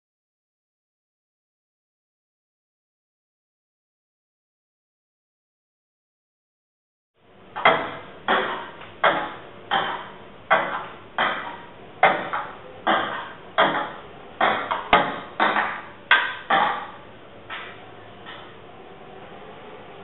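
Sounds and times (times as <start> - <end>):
table tennis ball knocks: 7.6 - 18.4.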